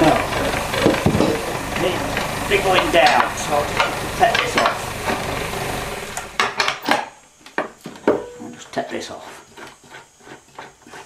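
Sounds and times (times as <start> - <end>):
lathe humming: 0.0 - 6.6
tool scraping turning wood: 0.0 - 6.8, 8.0 - 11.0
knocks: 0.8 - 1.5.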